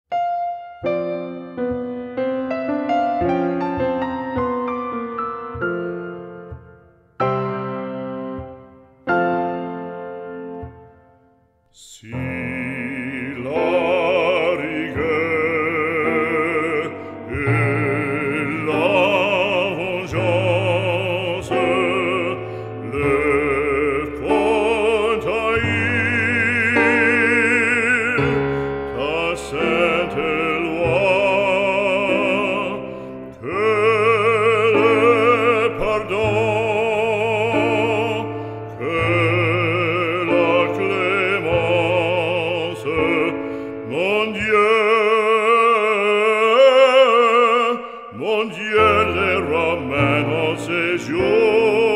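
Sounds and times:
classical accompaniment: 0.1s - 51.9s
operatic singing with vibrato: 11.7s - 51.9s.

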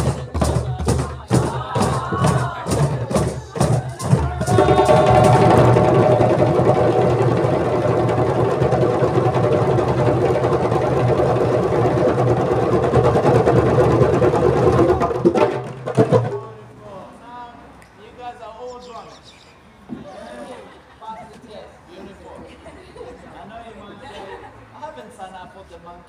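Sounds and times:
djembe drum roll: 0.0s - 16.8s.

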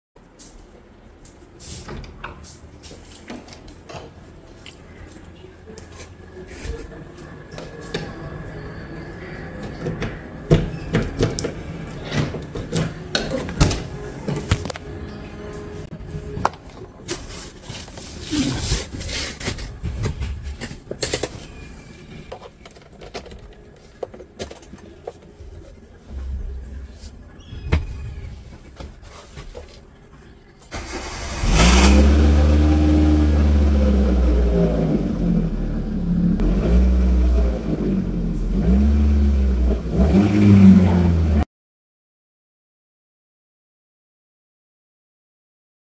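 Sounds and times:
car engine starting and revving: 30.7s - 41.4s.

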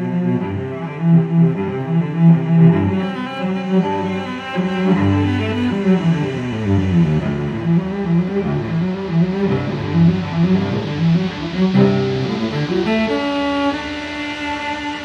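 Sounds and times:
held high string notes: 0.0s - 15.0s
low string line: 0.0s - 15.0s.

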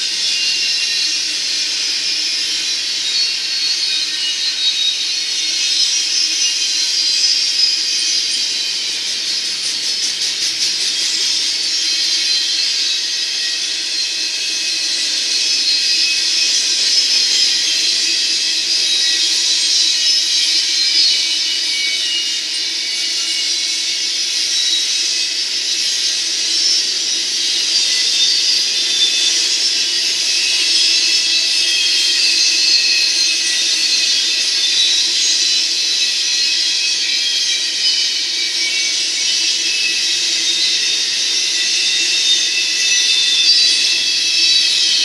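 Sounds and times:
steel wheels hissing on rail: 0.0s - 45.0s.

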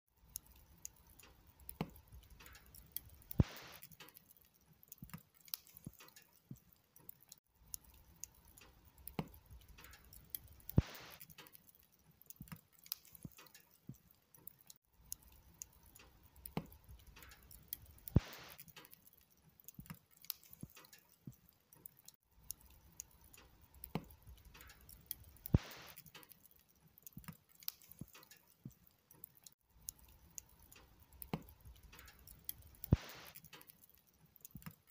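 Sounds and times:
log fire crackling: 0.2s - 34.9s
faint hiss: 3.3s - 4.1s, 10.7s - 11.3s, 18.1s - 18.6s, 25.5s - 26.2s, 32.0s - 33.7s.

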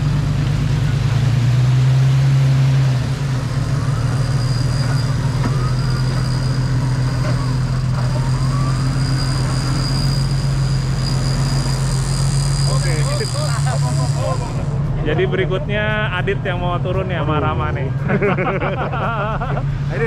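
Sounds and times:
engine droning: 0.0s - 20.0s.

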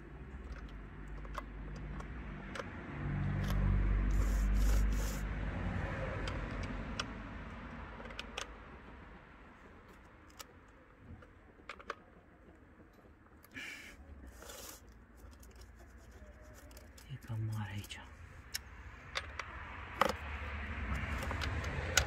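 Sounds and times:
vehicle engine passing by: 1.5s - 9.6s, 16.0s - 22.0s.

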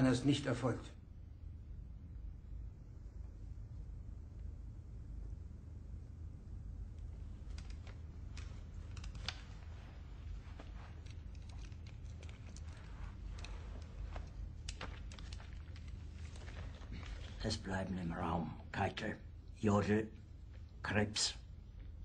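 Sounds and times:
low steady hum: 0.0s - 22.0s
clothing rustling: 7.2s - 18.1s
eyeglasses handling clicks: 7.4s - 9.7s.

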